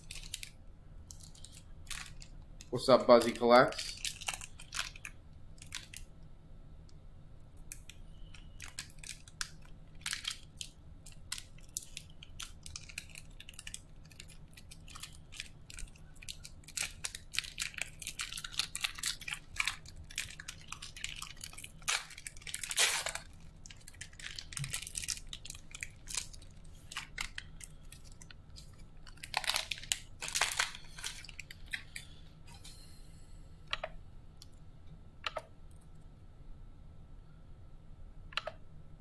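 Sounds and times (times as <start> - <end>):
plastic wrapper crinkling: 0.0 - 6.1, 7.6 - 32.2.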